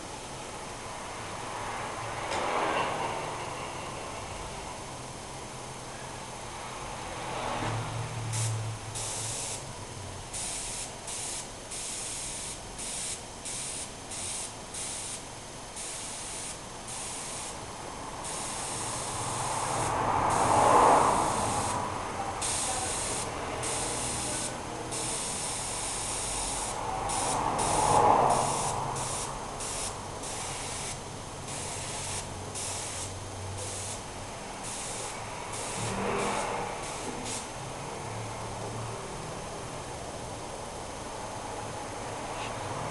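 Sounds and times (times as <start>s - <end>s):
airbrush spraying hiss: 8.3s - 9.7s, 10.3s - 37.6s
loud whooshes: 26.7s - 30.6s, 35.1s - 37.4s.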